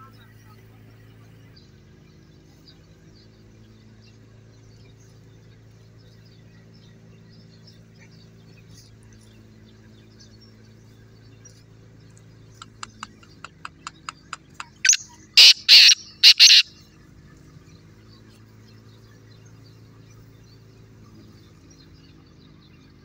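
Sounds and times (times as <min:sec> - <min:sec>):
bird ticking notes: 0:12.1 - 0:16.7
harsh grating bird calls: 0:12.5 - 0:16.8.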